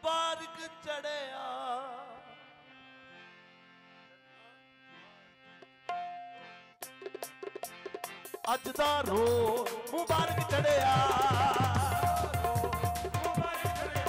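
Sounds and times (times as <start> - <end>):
harmoniums holding sustained chords: 0.0 - 14.0
sharp drum beats: 5.9 - 14.0.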